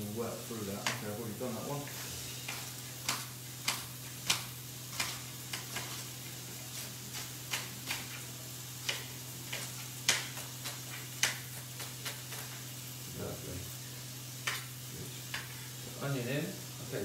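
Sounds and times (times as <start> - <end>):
knife tapping on chopping board: 8.8 - 12.5.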